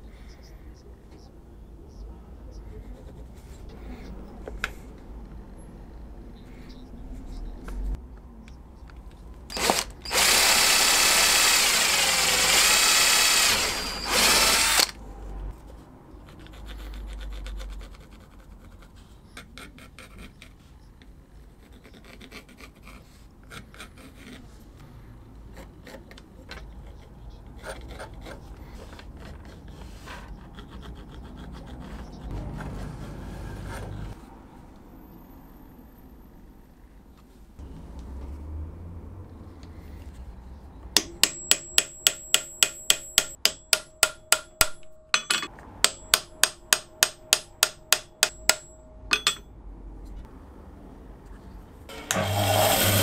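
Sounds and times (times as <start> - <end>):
electric drill running: 9.5 - 15.0, 51.9 - 53.0
pencil scratching and tapping: 16.2 - 20.6, 21.6 - 24.4.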